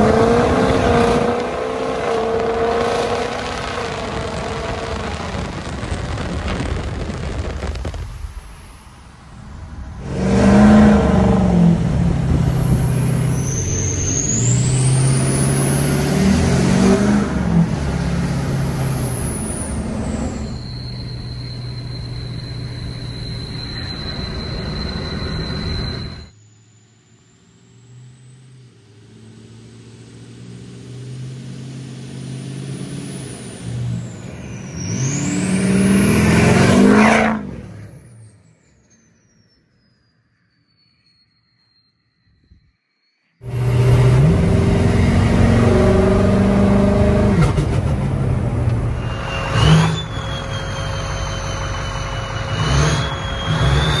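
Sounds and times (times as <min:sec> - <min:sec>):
diesel truck engine accelerating: 0:00.0 - 0:08.6, 0:09.4 - 0:38.4, 0:43.4 - 0:54.0
turbo whistle: 0:11.9 - 0:17.0, 0:17.6 - 0:27.5, 0:48.9 - 0:54.0.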